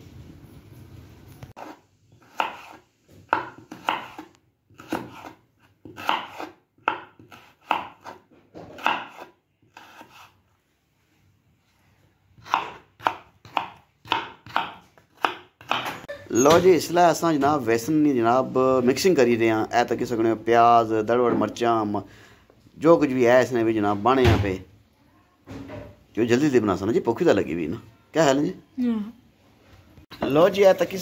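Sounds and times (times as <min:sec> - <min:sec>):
knife slicing vegetables on board: 0:01.6 - 0:10.4, 0:12.4 - 0:16.0.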